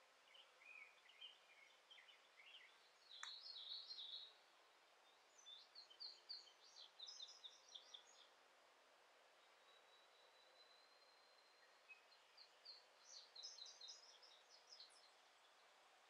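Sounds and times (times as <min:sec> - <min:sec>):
songbird chirping: 0:00.0 - 0:16.0.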